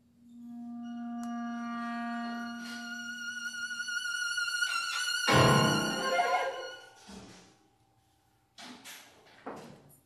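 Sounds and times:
violin note: 0.4s - 7.1s.

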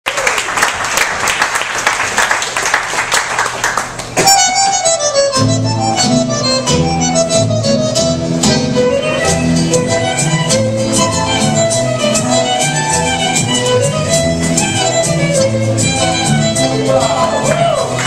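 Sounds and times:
bandoneon tango melody: 4.2s - 18.0s
low rhythmic accompaniment: 4.2s - 18.0s.

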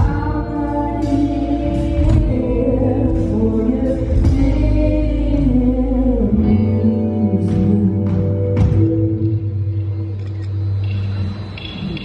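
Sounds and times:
person singing: 0.0s - 9.5s
live band playing: 0.0s - 12.0s.

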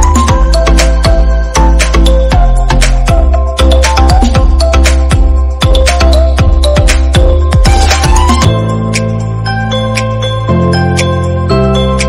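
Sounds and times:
drum beat: 0.0s - 8.5s.

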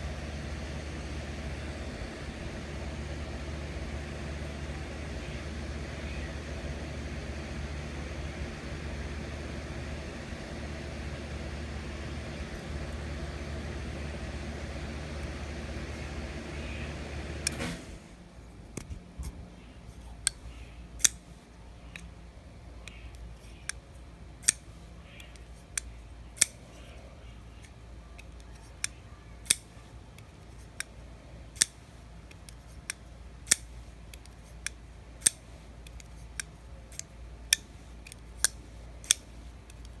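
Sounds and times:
folding knife clicking open and shut: 20.2s - 21.3s, 24.4s - 26.6s, 27.6s - 30.9s, 31.5s - 40.0s.

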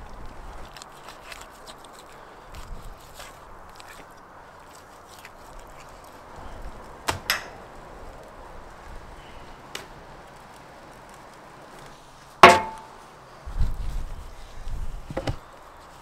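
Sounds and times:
knife chopping on wooden table: 12.4s - 12.9s.

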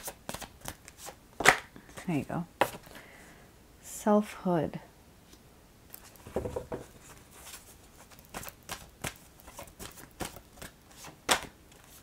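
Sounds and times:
cards being shuffled: 0.0s - 1.6s, 6.0s - 12.0s.

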